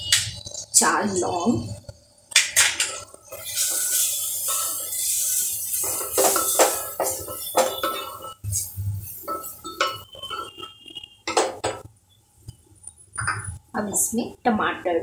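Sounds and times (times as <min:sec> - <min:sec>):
spatula scraping spices: 0:03.3 - 0:11.0
spatula clinking in metal pot: 0:05.8 - 0:08.4, 0:09.2 - 0:11.8.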